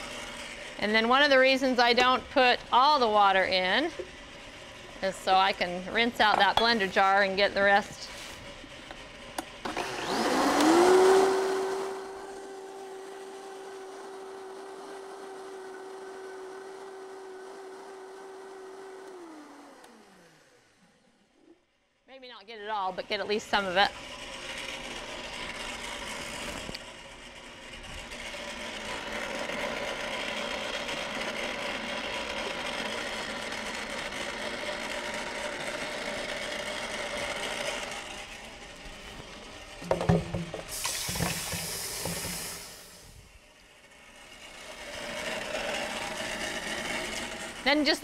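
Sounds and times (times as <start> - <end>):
ice cream maker motor churning: 0.0 - 21.6, 22.9 - 48.0
brief hiss: 40.7 - 43.2.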